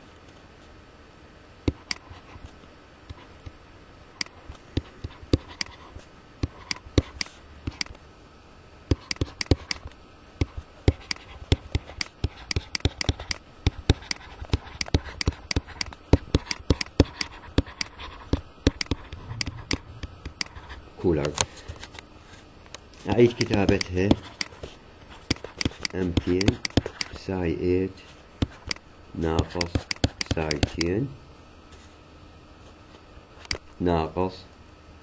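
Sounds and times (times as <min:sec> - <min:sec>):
stylus tapping on pen tablet: 0:04.2 - 0:05.8, 0:06.4 - 0:07.9, 0:08.9 - 0:20.6, 0:23.1 - 0:27.2, 0:28.4 - 0:30.9.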